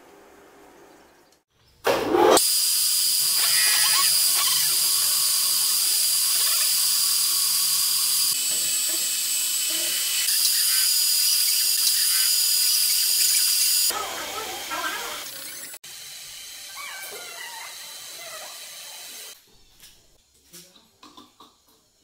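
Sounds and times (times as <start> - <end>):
metal lathe cutting steel: 2.5 - 19.4.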